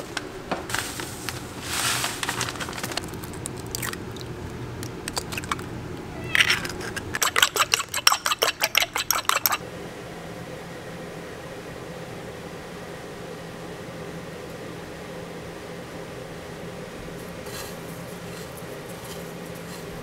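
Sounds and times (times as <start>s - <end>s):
breadcrumbs poured rustling: 0.7s - 3.8s
fork whisking egg in bowl: 3.0s - 5.7s, 6.3s - 9.6s.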